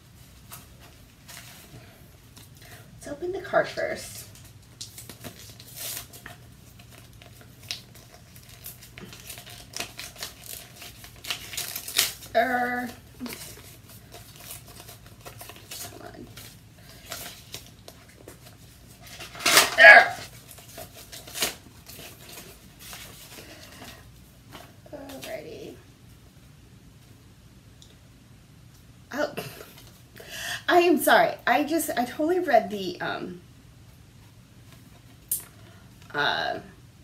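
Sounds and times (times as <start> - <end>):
paper envelope tearing: 4.4 - 23.4.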